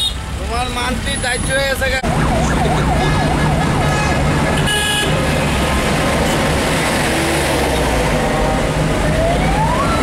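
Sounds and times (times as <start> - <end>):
road traffic engine drone: 0.0 - 10.0
warbling siren: 2.0 - 4.6, 9.0 - 10.0
car horn toot: 3.0 - 5.5.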